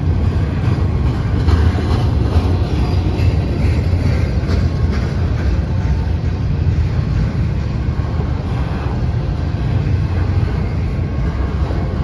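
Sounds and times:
freight train rumbling past: 0.0s - 12.0s.

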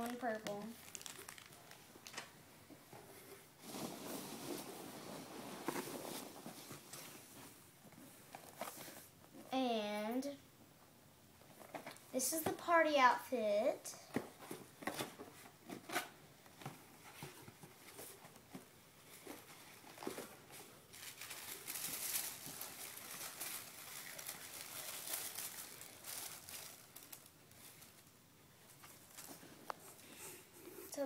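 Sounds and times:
wrapping crinkling: 0.0s - 2.3s, 19.0s - 30.1s.

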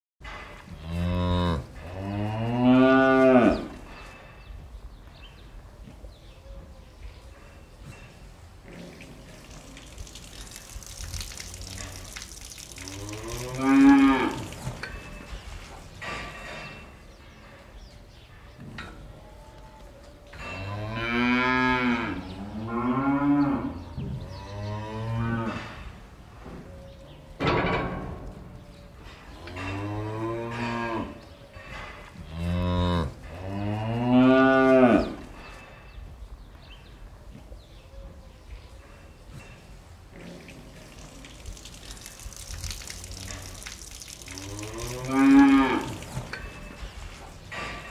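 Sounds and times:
cows mooing: 0.8s - 3.8s, 11.3s - 14.8s, 20.6s - 25.7s, 32.3s - 35.2s, 44.3s - 46.4s.

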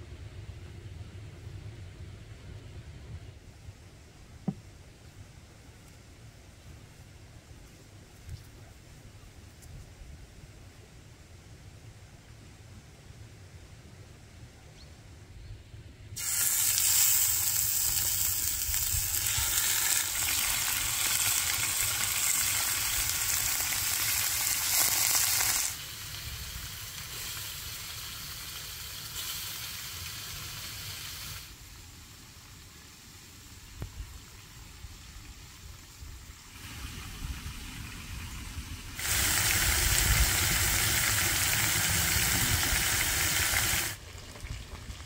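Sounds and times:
food sizzling in hot oil: 16.2s - 31.5s, 39.0s - 44.0s.

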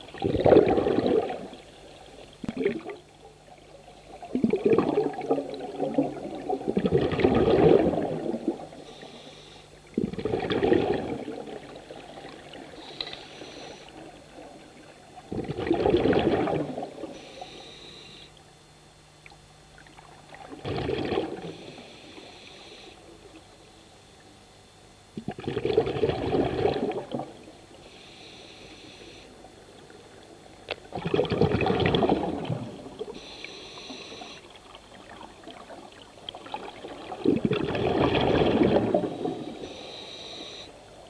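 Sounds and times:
bubbling exhalations underwater: 0.0s - 1.7s, 2.4s - 3.1s, 4.1s - 8.8s, 9.9s - 12.8s, 15.2s - 17.1s, 20.3s - 21.7s, 25.2s - 27.5s, 30.8s - 33.2s, 34.8s - 39.7s
regulator inhalation hiss: 8.7s - 9.8s, 12.7s - 14.1s, 17.0s - 18.4s, 21.5s - 23.4s, 27.8s - 29.6s, 33.0s - 34.6s, 39.2s - 40.9s.

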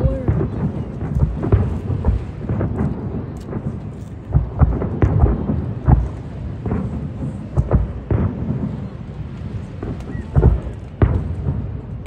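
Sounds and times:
fireworks bursting booms: 0.0s - 12.0s.

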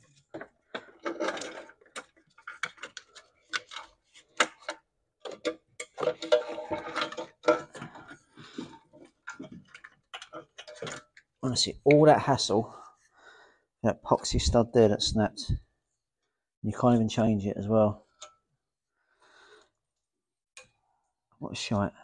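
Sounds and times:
clicks and knocks of parts: 0.0s - 12.0s.

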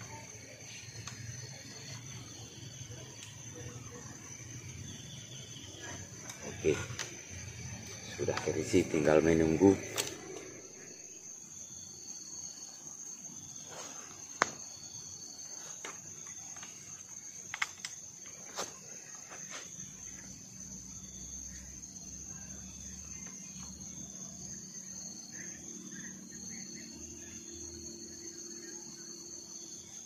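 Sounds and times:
insects chirping: 0.0s - 30.0s
sharp clicks: 9.8s - 10.5s.

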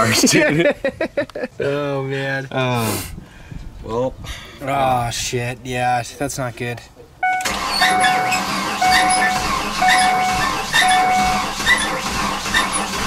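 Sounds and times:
dashboard warning chime: 7.2s - 11.9s.

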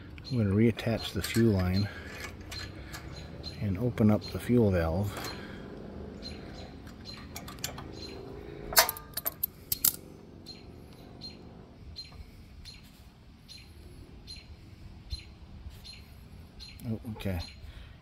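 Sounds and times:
small bird chirping: 0.0s - 8.7s, 9.5s - 17.8s
metallic clicks and clatters of pliers: 8.7s - 10.0s.

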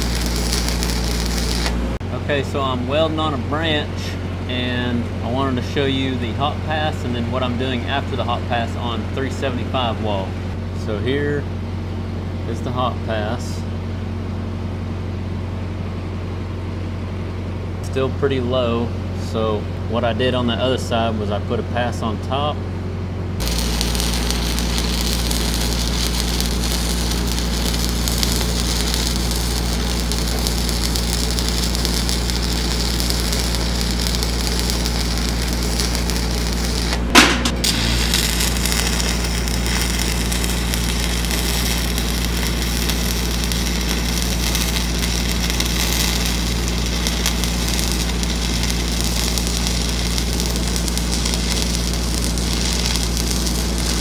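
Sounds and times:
welding arc crackling: 0.0s - 2.0s, 23.4s - 54.0s
low machine hum: 0.0s - 54.0s
sharp pop: 37.1s - 37.9s.

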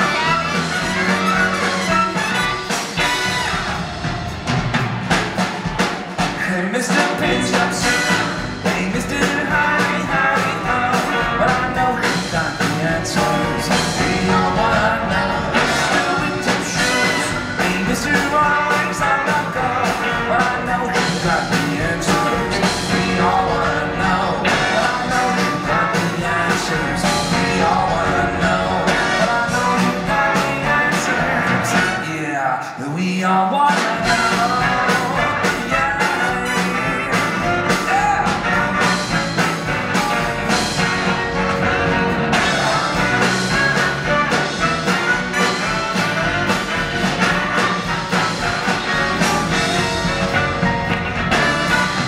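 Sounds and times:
saxophones: 0.0s - 4.4s, 7.2s - 8.9s, 13.1s - 20.2s, 34.0s - 52.0s
upright bass: 0.0s - 32.2s, 33.8s - 52.0s
drum kit: 0.0s - 32.3s, 33.5s - 52.0s
piano: 0.0s - 32.4s, 33.3s - 52.0s
electric guitar: 34.0s - 52.0s.

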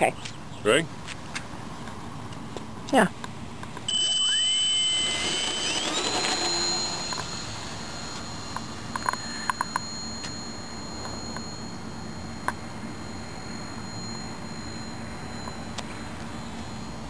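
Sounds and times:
model plane electric motor whining: 3.9s - 16.9s.

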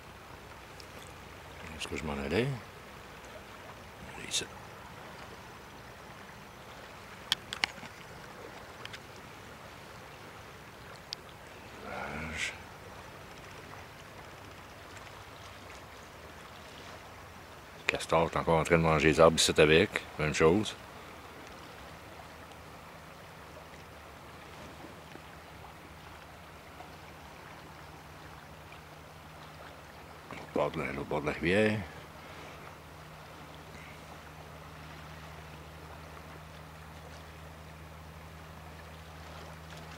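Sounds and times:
river water rushing: 0.0s - 39.9s.

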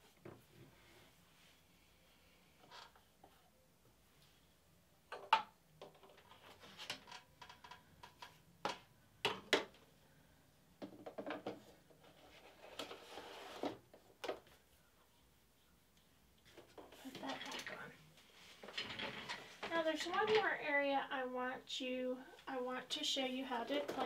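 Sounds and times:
plastic table sliding: 12.0s - 13.8s.

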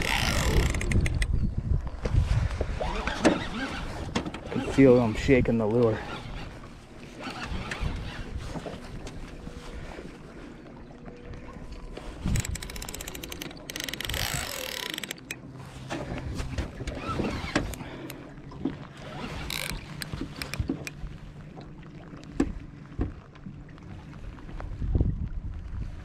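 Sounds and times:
fishing reel clicking: 0.0s - 1.3s, 12.2s - 15.4s, 19.3s - 21.0s
knocks and clatter on a boat: 0.0s - 26.0s.

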